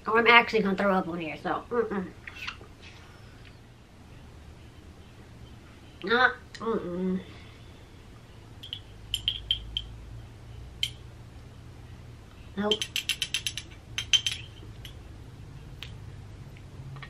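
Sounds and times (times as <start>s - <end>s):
plastic spoon clicking on glass jar: 8.6s - 9.9s, 12.7s - 15.0s.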